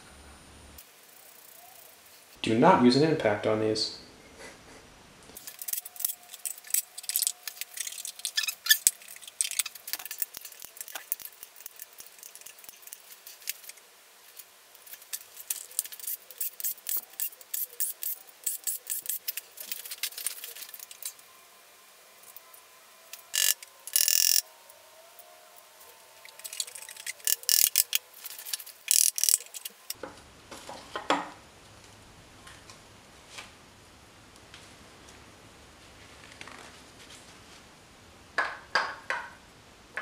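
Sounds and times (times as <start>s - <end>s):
metallic scrapes: 5.4s - 21.2s
hand ratchet clicking: 15.5s - 20.4s, 23.2s - 24.4s, 26.4s - 29.7s.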